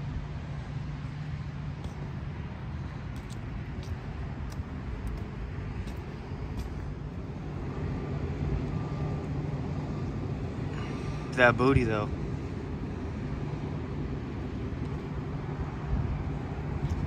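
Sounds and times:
low rumble of vehicles: 0:00.0 - 0:17.0
footsteps on wet pavement: 0:00.9 - 0:07.9.

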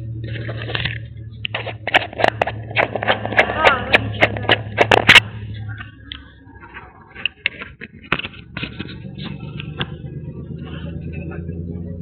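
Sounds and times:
low steady hum: 0:00.0 - 0:12.0
camera rubbing against fur: 0:00.3 - 0:05.2
camera knocking: 0:01.6 - 0:05.2.

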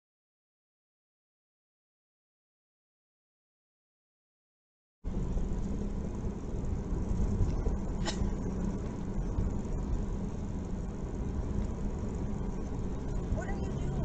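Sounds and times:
car engine and road noise: 0:05.0 - 0:14.0.

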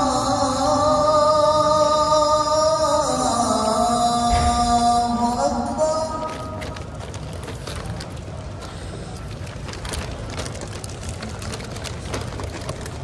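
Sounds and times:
crowd murmur in reverberant hall: 0:00.0 - 0:13.0
plastic bags rustling: 0:05.9 - 0:13.0
clatter of food packets and cups: 0:06.1 - 0:13.0.

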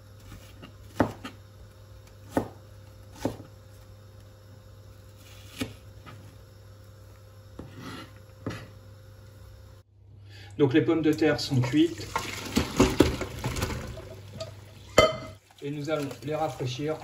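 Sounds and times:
knife slicing onion: 0:00.0 - 0:03.9, 0:05.0 - 0:06.3, 0:07.6 - 0:08.8.

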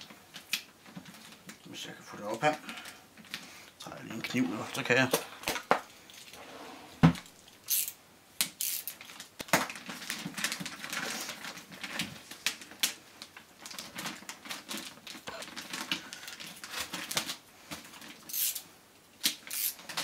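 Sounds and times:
plastic bag crinkling: 0:08.8 - 0:18.5.

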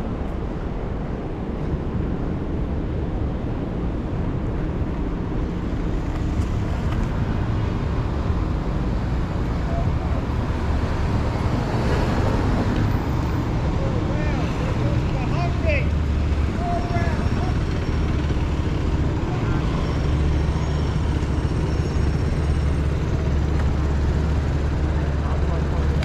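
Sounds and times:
city traffic hum: 0:00.0 - 0:26.0
skate wheels rolling on asphalt: 0:05.4 - 0:07.8.

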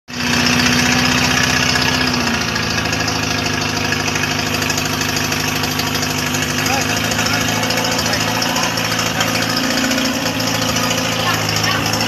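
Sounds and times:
engine idling: 0:00.1 - 0:12.0
engine pinging: 0:00.1 - 0:12.0.

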